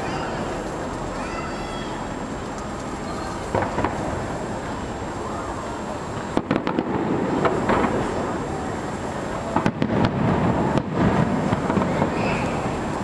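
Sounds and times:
continuous low rumble: 0.0s - 13.0s
fireworks bangs: 2.1s - 13.0s.

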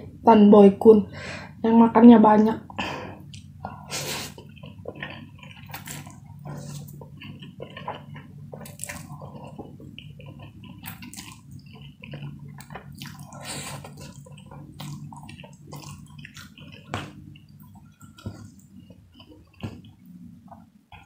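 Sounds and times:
wet chewing: 3.3s - 21.0s.

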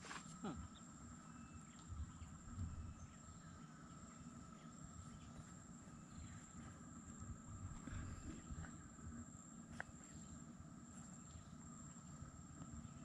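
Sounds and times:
insect drone: 0.0s - 13.0s.

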